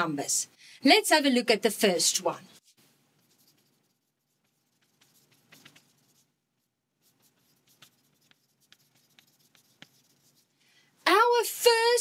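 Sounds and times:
chalk scratching on a chalkboard: 2.5 - 10.6.

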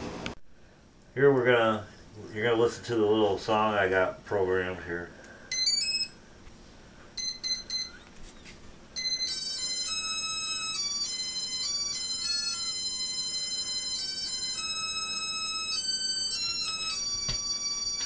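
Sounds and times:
electronic motor beeps melody: 5.5 - 6.2, 7.2 - 8.1, 9.0 - 18.0.

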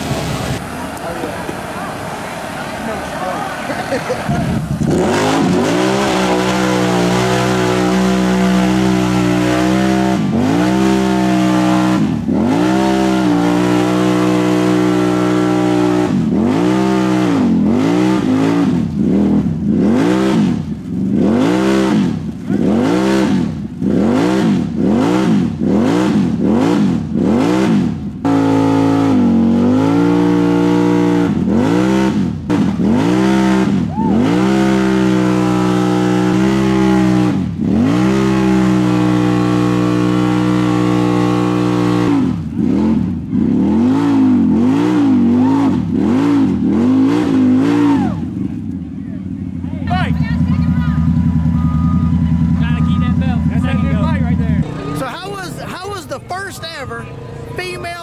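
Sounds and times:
atv engine revving in mud: 0.0 - 56.5.

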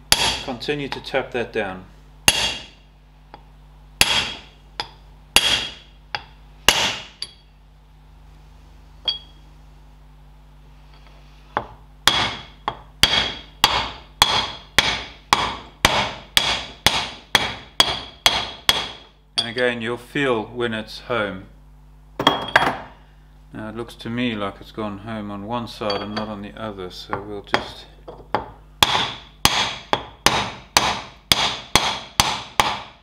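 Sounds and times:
wooden mallet striking steel drift: 4.0 - 7.4.

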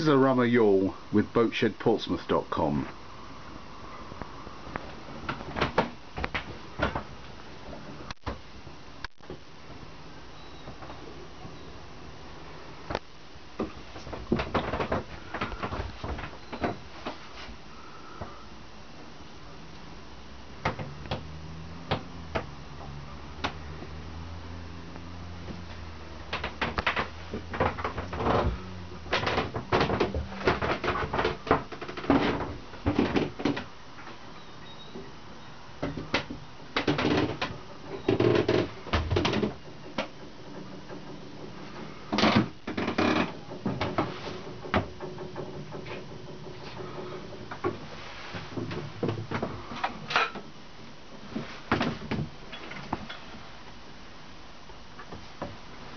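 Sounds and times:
low hum: 2.8 - 32.8
knocks and clunks of movement: 4.7 - 8.5, 12.8 - 17.6, 20.6 - 34.2, 35.8 - 50.6, 51.2 - 53.5.

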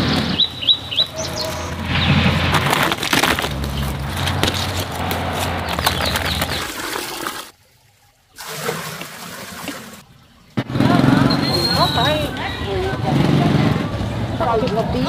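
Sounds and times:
rustling leaves: 0.0 - 7.6.

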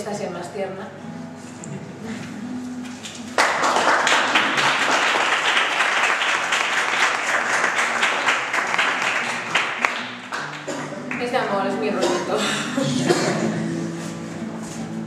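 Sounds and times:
audience applauding: 3.2 - 11.4.

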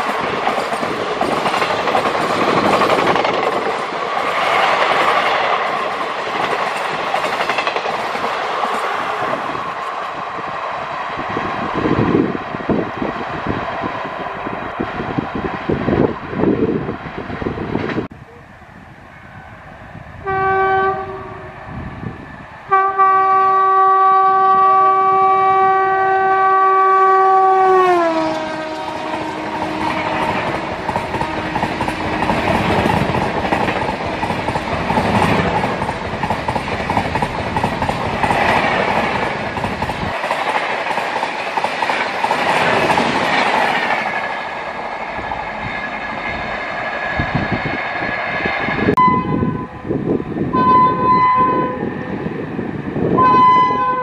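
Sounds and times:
train coaches clattering past: 0.0 - 18.4, 27.2 - 54.0
train horn blasts: 20.2 - 21.6, 22.7 - 32.2, 49.0 - 49.9, 50.5 - 52.0, 53.1 - 54.0.

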